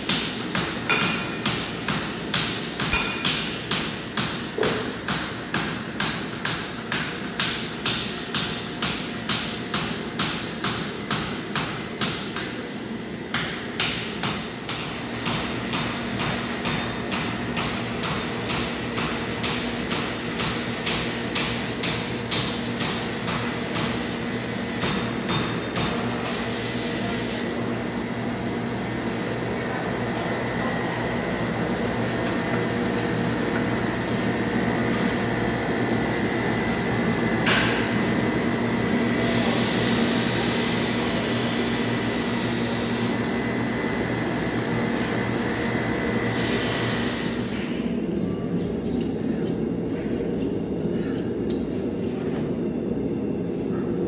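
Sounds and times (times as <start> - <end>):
hammer striking steel on anvil: 0.0 - 24.2, 24.8 - 26.3
steel grinding hiss: 46.3 - 47.8.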